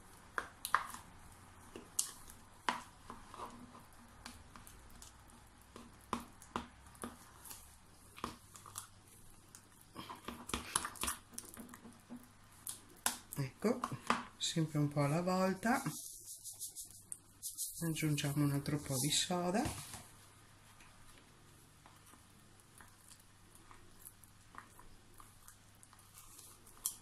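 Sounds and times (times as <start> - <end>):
metal spoon stirring in plastic cup: 15.0 - 19.4.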